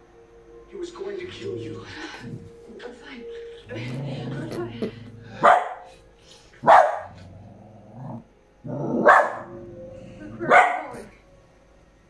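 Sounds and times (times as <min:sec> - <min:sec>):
dog barking: 0:05.4 - 0:05.9, 0:06.6 - 0:07.3, 0:09.0 - 0:09.6, 0:10.4 - 0:11.1.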